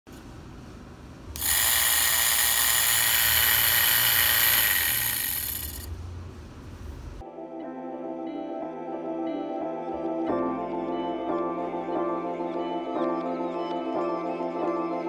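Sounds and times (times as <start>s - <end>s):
electric motor whirring: 1.4s - 5.9s.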